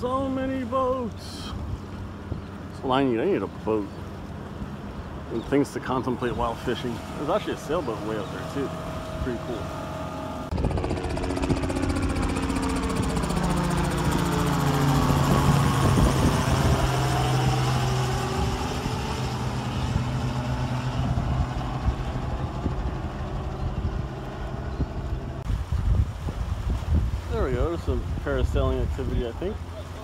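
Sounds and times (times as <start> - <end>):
engine passing by: 4.3 - 25.4.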